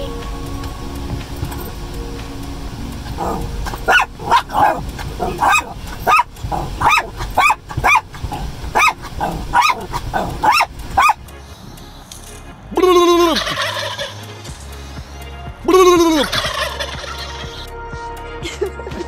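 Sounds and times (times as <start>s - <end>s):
small dog yipping: 3.2s - 8.1s, 8.8s - 11.2s.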